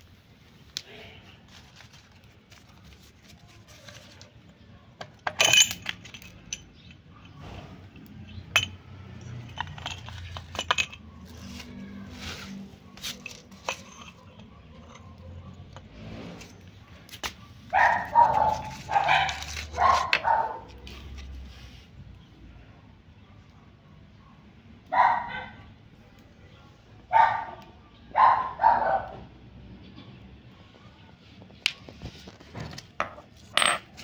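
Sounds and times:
metal tools clinking: 5.0 - 16.6, 33.0 - 34.0
dog barking: 16.8 - 21.1, 23.2 - 25.7, 27.1 - 29.3.

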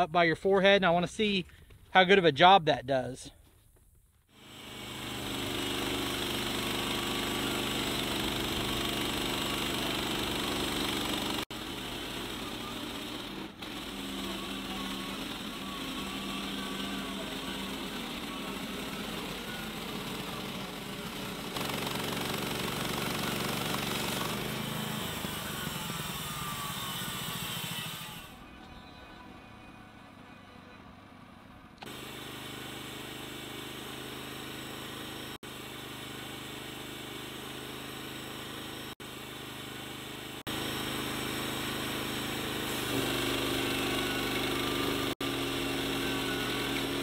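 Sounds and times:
sawmill gas engine running: 4.3 - 28.4, 31.8 - 47.0.

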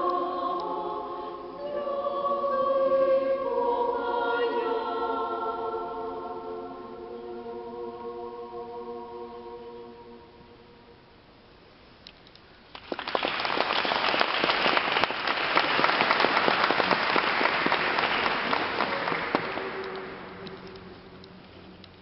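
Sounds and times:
audience applauding: 12.7 - 20.7.

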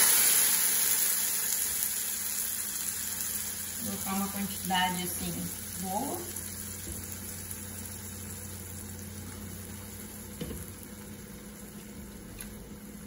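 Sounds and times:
sausage and onion sizzling in pot: 0.0 - 13.0.

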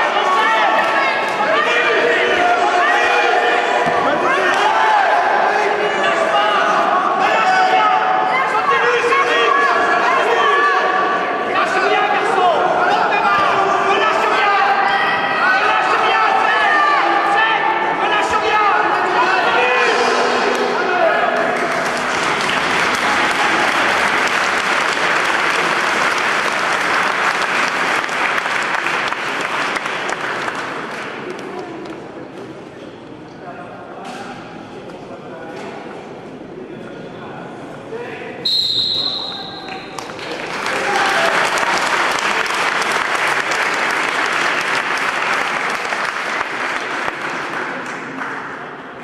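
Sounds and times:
audience applauding: 21.4 - 31.5, 39.6 - 48.7
spectators clapping: 21.4 - 32.0, 39.6 - 49.0.

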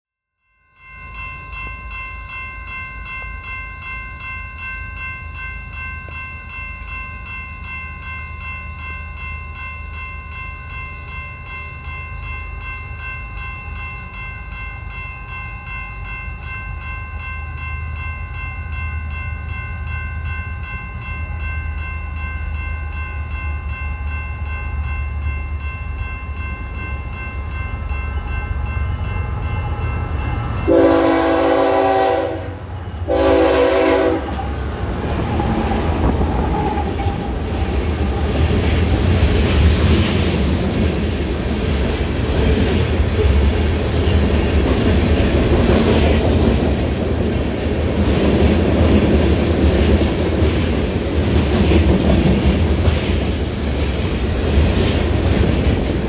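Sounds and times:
crossing warning bell ringing: 0.3 - 56.0
train rumble: 1.1 - 56.0.

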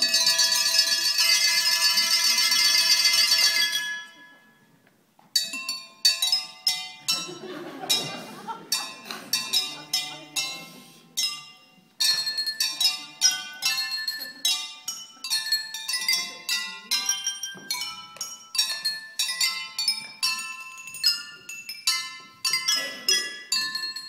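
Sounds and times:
drinking glasses struck ringing: 5.4 - 24.0.

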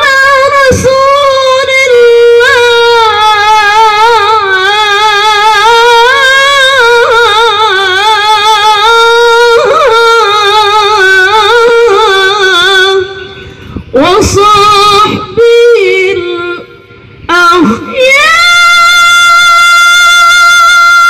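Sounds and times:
woman reciting through loudspeaker: 0.0 - 21.0.

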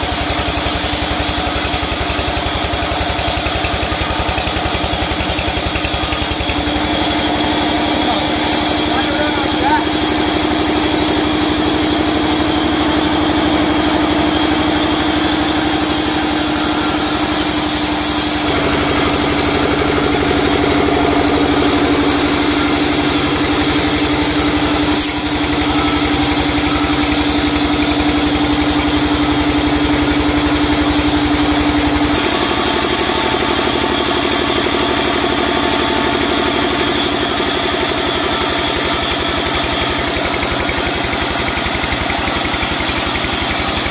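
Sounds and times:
steady whine: 5.8 - 43.9.

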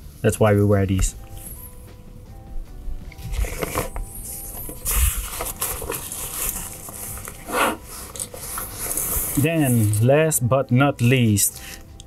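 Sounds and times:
backpack swishing: 3.2 - 10.0
backpack fabric rustling: 3.2 - 10.1.

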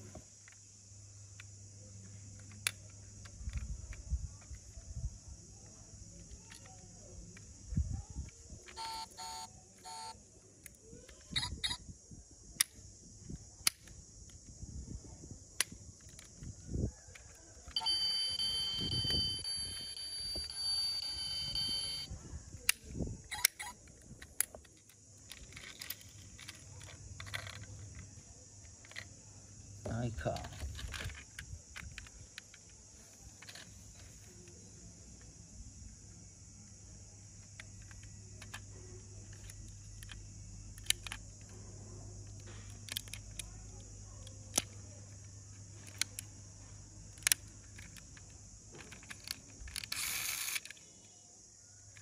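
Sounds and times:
plastic toys clicking and knocking: 1.3 - 4.8, 5.6 - 11.8, 12.6 - 14.5, 15.5 - 22.0, 22.6 - 29.2, 29.8 - 35.3, 37.3 - 51.2
electronic beeps: 8.8 - 10.1, 17.8 - 22.1
high buzzing alarm tone: 8.8 - 10.2, 17.8 - 22.1.

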